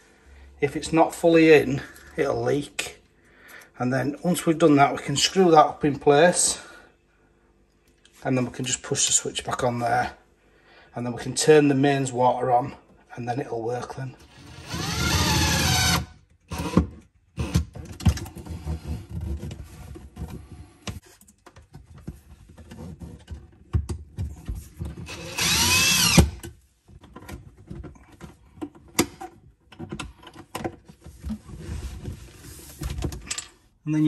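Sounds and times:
drill motor whining: 14.3s - 16.8s, 25.1s - 26.4s.

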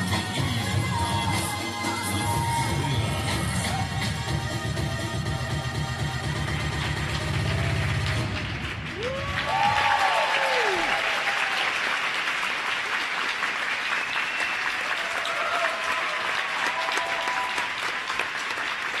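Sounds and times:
audience applauding: 6.7s - 19.0s.

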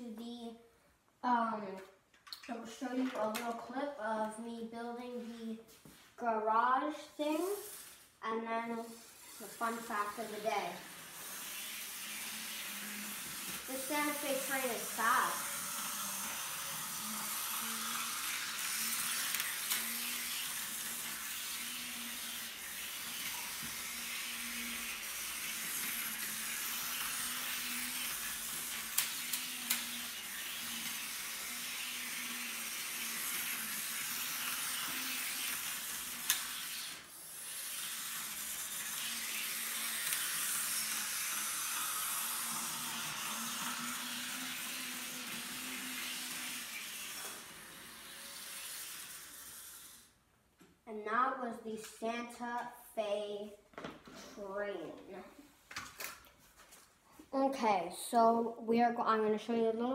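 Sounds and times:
model train motor whirring: 7.5s - 8.0s, 8.8s - 50.2s.

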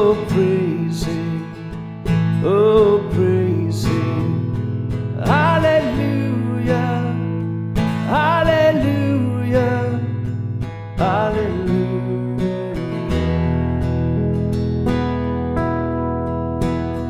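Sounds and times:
strummed acoustic guitar: 0.0s - 17.0s
person singing a hymn: 5.2s - 7.2s.

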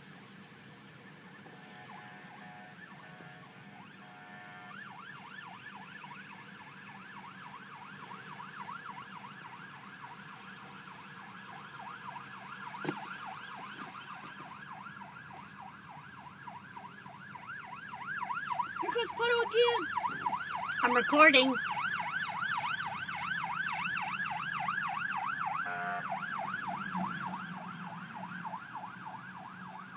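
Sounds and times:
electronic siren yelping: 17.4s - 29.9s.

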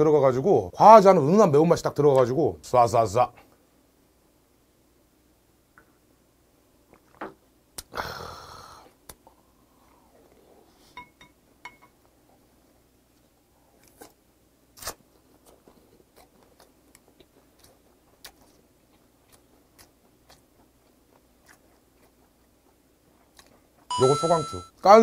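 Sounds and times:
chewing with wet mouth clicks: 15.4s - 23.9s.

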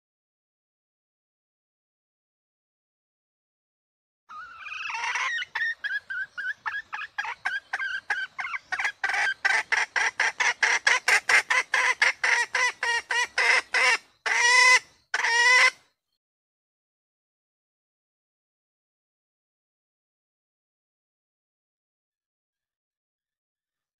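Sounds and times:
hen clucking and calling: 4.3s - 15.8s.

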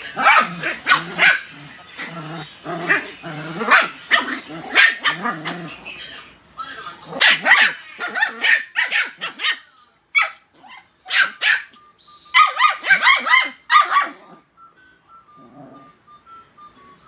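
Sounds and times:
puppies yapping and barking: 0.0s - 6.3s, 7.0s - 11.8s, 12.4s - 14.5s.

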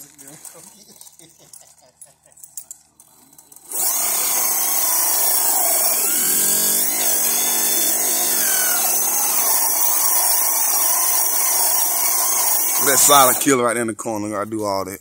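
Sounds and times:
rc car engine buzzing: 3.2s - 13.5s.

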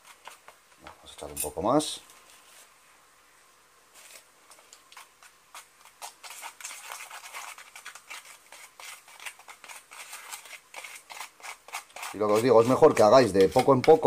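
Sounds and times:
metal blade scraping paste in tub: 5.0s - 14.0s.

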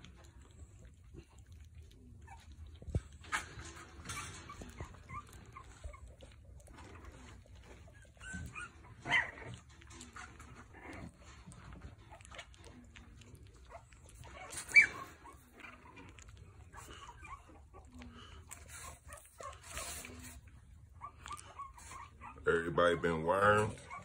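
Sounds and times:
puppies whimpering and squeaking: 0.0s - 24.0s
puppy squealing: 3.2s - 6.9s, 7.6s - 9.6s, 13.7s - 24.0s.

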